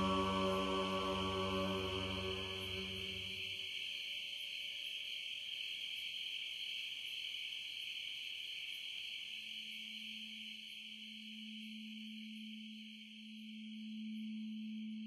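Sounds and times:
low steady tone: 0.0s - 3.4s.

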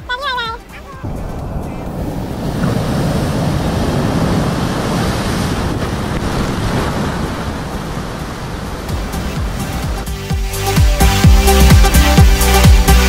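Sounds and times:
ocean surf breaking on rocks: 1.0s - 10.8s.

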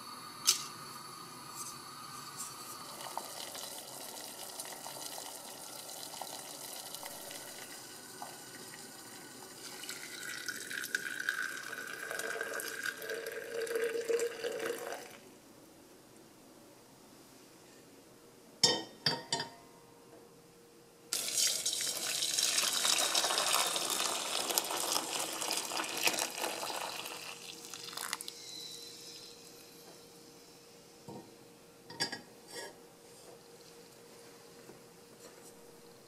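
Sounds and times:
water pouring into metal bowl: 2.6s - 15.2s, 21.2s - 28.3s.

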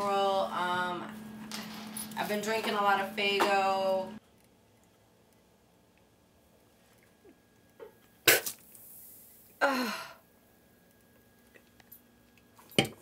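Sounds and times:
woman gagging groan: 9.6s - 10.2s.

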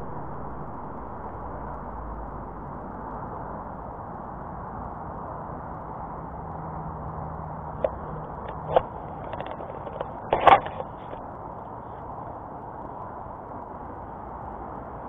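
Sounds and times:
steady background noise: 0.0s - 15.0s
camera clattering on stones: 7.8s - 11.2s
camera knocking: 7.8s - 11.2s
small clicks: 7.8s - 11.2s.

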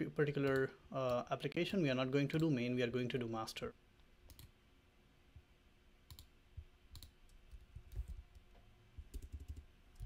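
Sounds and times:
faint keyboard and mouse clicks: 4.2s - 4.6s, 6.1s - 10.0s.

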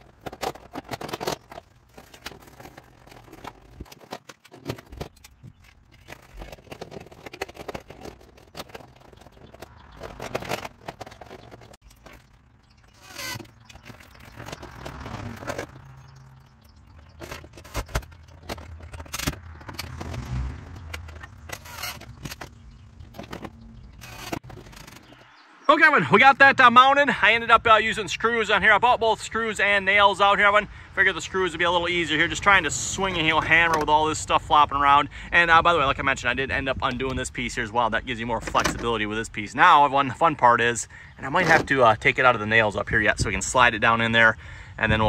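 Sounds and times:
scraping and rattling of siding: 0.0s - 25.4s, 38.2s - 44.0s.

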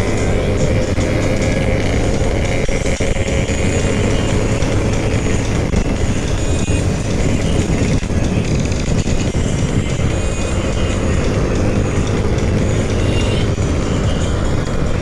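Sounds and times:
scooter road noise: 0.0s - 15.0s
wind on microphone: 0.0s - 15.0s.

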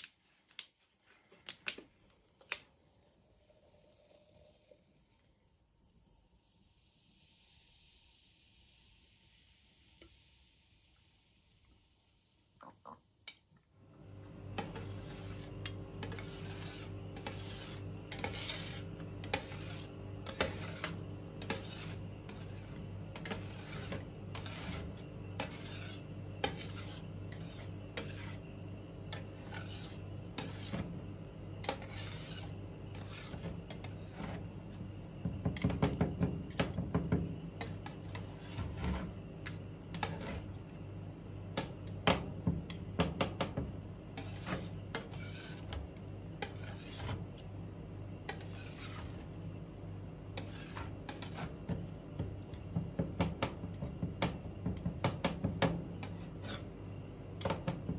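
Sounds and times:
metal spatulas scraping on steel: 14.6s - 28.4s, 29.1s - 30.9s, 31.6s - 34.4s, 44.2s - 45.8s, 46.4s - 47.2s, 48.3s - 49.2s, 50.4s - 51.5s, 56.0s - 56.7s.

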